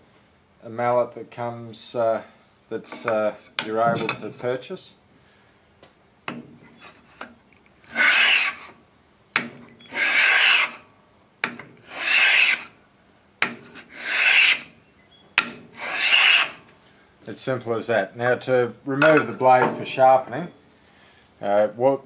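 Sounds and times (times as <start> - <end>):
hand plane rasping on wood: 10.0 - 10.8, 11.9 - 12.6, 13.9 - 14.6, 15.8 - 16.5.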